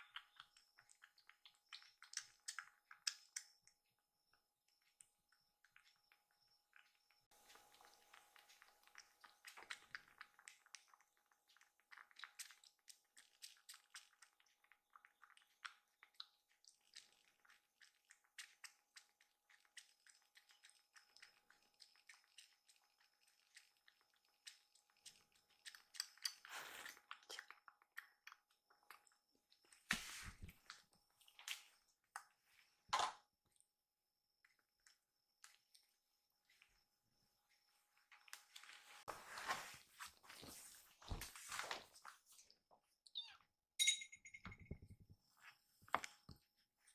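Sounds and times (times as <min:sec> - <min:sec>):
kitten suckling wet clicks: 0:00.0 - 0:03.8, 0:07.4 - 0:29.9.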